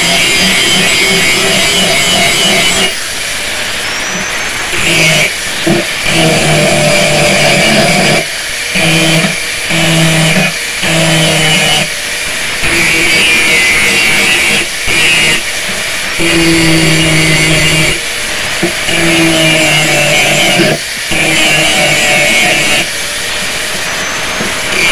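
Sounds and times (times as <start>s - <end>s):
angle grinder grinding steel: 0.0s - 24.9s.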